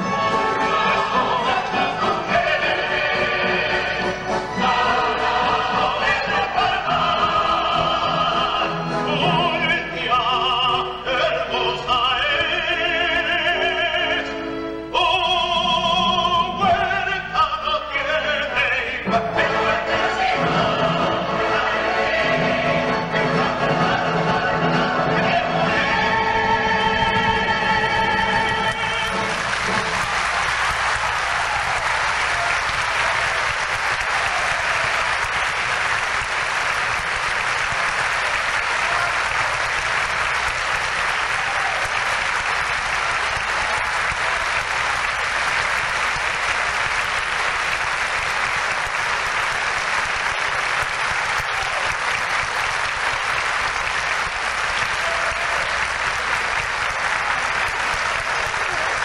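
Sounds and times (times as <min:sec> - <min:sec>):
audience applauding: 0:28.1 - 0:59.0.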